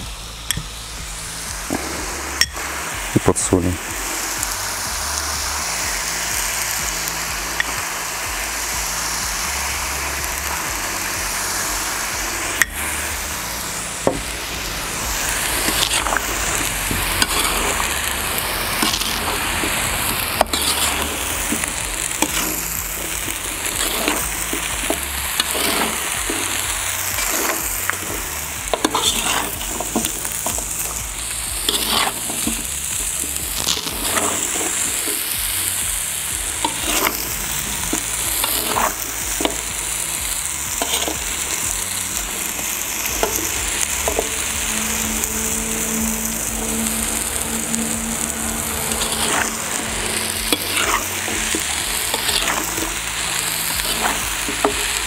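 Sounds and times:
meat sizzling in hot oil: 0.0 - 55.0
metal skimmer scraping pot: 12.4 - 35.7, 36.3 - 39.7, 42.4 - 55.0.

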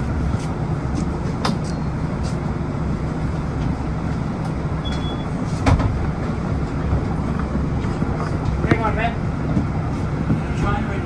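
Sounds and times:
bus engine idling: 0.0 - 11.0
short high beep: 4.8 - 5.3.

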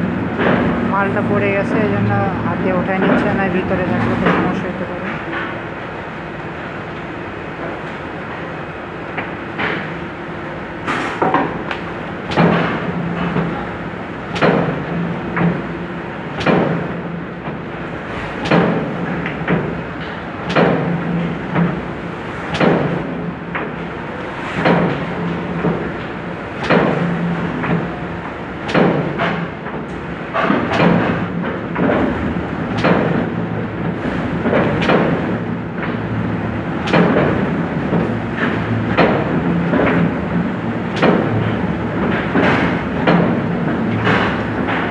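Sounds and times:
die-cutting machine clunking: 0.0 - 5.6, 10.8 - 44.9
steady machine hum: 0.0 - 44.9.

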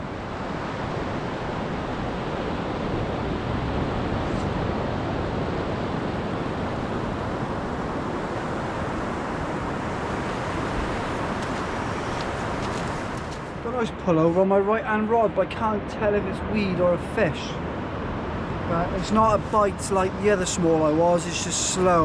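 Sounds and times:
wind buffeting microphone: 0.0 - 13.7
waves breaking in surf: 0.0 - 14.4.

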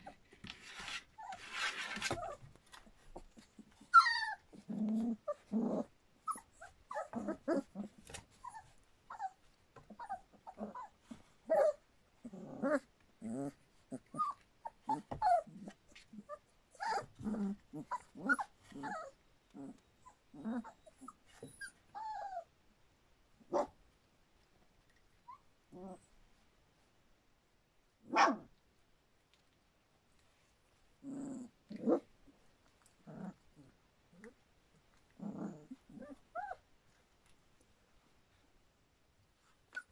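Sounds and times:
puppies crying and yipping: 3.7 - 11.8, 13.9 - 19.2.

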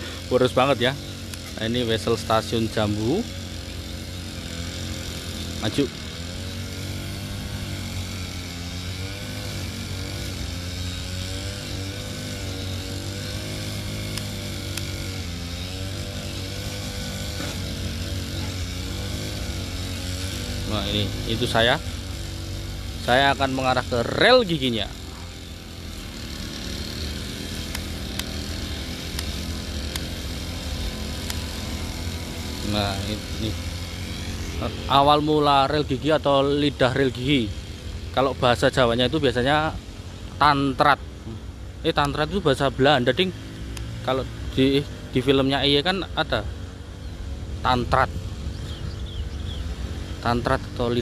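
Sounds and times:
brush cutter engine running: 0.0 - 51.0
small motor humming: 0.0 - 51.0
sharp clicks: 1.3 - 1.6, 14.1 - 15.0, 27.6 - 28.4, 29.0 - 30.1.

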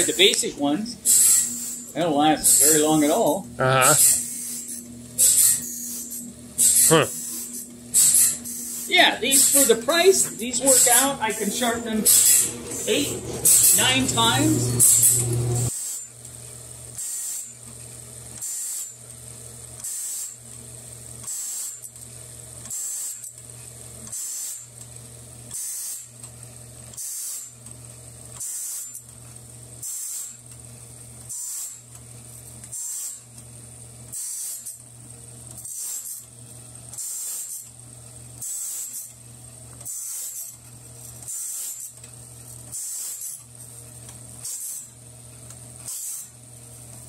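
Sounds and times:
motor humming: 0.0 - 15.7
grinding wheel hissing grind: 0.0 - 15.8.

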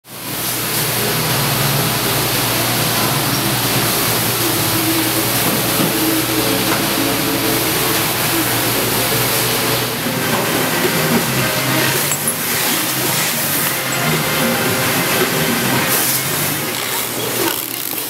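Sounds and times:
loud rushing ventilation noise: 0.1 - 17.8.

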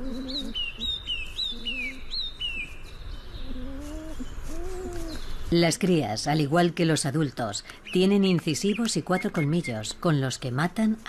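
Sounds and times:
low drawn-out bird calls: 0.0 - 5.5
songbird chirping: 0.0 - 10.6.

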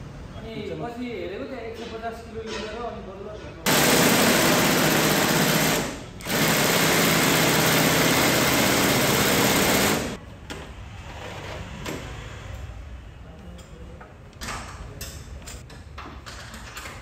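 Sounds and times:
impact wrench hammering: 3.7 - 10.2.

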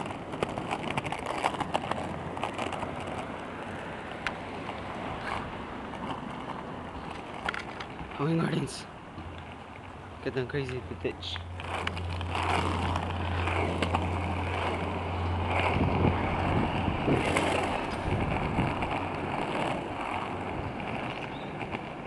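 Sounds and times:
skateboard wheels rolling on asphalt: 0.0 - 22.0
wind buffeting microphone: 11.5 - 22.0.

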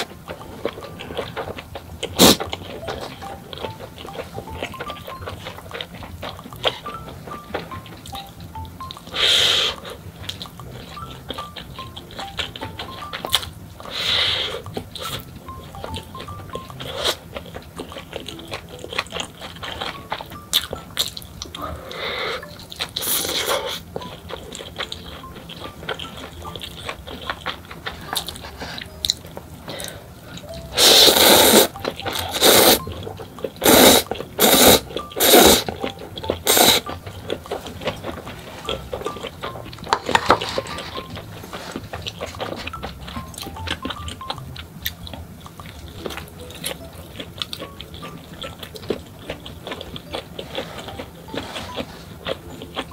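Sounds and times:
crunchy chewing: 0.0 - 52.9
faint background music: 0.0 - 52.9
slurping noodles: 2.1 - 2.5, 9.1 - 10.0, 13.8 - 15.2, 21.6 - 23.8, 30.7 - 32.8, 33.6 - 35.8, 36.4 - 36.9.

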